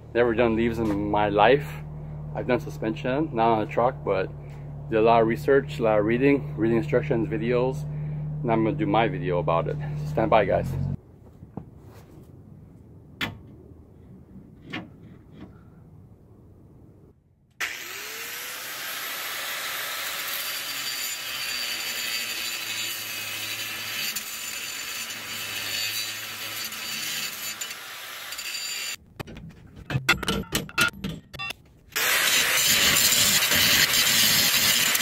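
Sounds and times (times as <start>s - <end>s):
angle grinder grinding steel: 17.6s - 29.0s, 32.0s - 35.0s.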